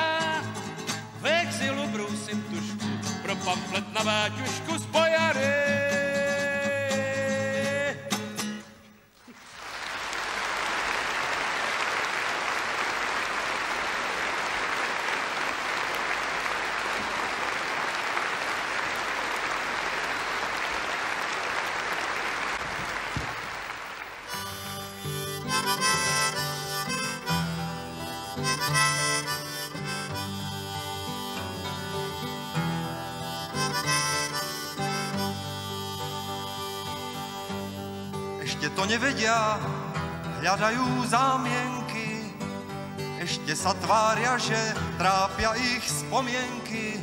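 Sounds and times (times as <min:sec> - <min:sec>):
acoustic guitar: 0:00.0 - 0:09.6, 0:24.2 - 0:47.0
audience applauding: 0:09.2 - 0:24.8
harmonica: 0:24.2 - 0:47.0.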